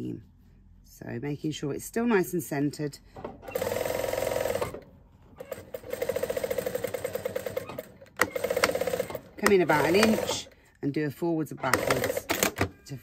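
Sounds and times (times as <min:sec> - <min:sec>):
sewing machine stitching: 0:03.4 - 0:04.8, 0:05.4 - 0:10.6, 0:11.6 - 0:12.7.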